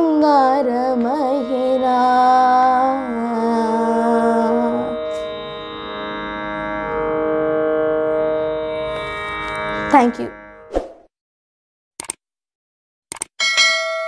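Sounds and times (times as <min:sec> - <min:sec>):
boy singing long note: 0:00.0 - 0:06.3
electronic drone: 0:00.0 - 0:10.7.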